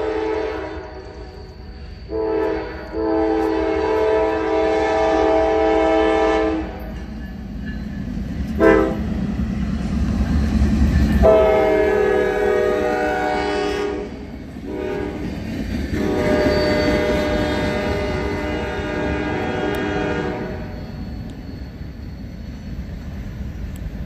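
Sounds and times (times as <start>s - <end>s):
locomotive air horn blasts: 0.0s - 1.0s, 2.1s - 6.8s, 8.6s - 9.0s, 11.2s - 15.3s, 16.0s - 20.7s
locomotive rumble: 0.0s - 24.0s
train wheel noise: 0.0s - 24.0s.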